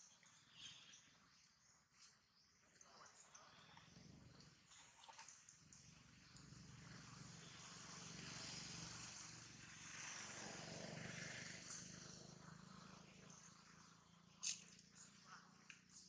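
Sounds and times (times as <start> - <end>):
distant engine noise: 5.0 - 16.0.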